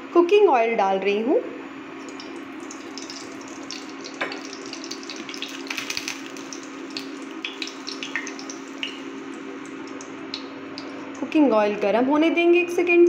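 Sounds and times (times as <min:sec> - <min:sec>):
steady hum: 0:01.1 - 0:13.0
oil crackling and sizzling in pan: 0:02.0 - 0:11.3.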